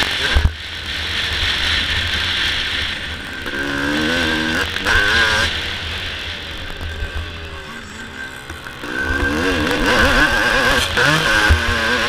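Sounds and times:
two-stroke motocross engine revving: 0.0s - 12.0s.

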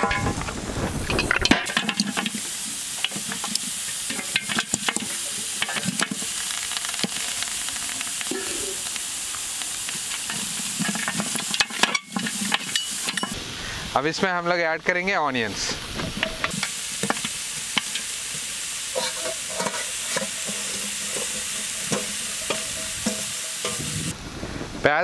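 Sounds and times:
meat sizzling in a pot: 0.0s - 24.2s
spoon scraping a pot: 18.9s - 24.1s.

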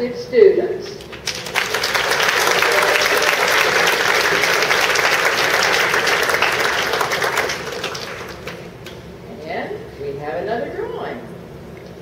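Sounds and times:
audience applauding: 1.0s - 9.0s.

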